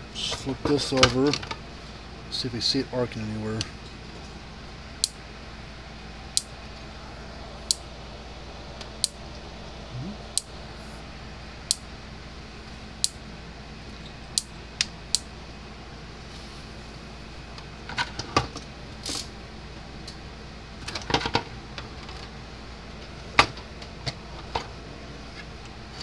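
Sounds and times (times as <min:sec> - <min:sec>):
faint steady hum: 0:00.0 - 0:26.0
electric fence charger clicking: 0:05.0 - 0:05.2, 0:06.3 - 0:06.8, 0:07.6 - 0:07.9, 0:08.8 - 0:09.4, 0:10.3 - 0:10.6, 0:13.0 - 0:13.2, 0:14.2 - 0:15.3.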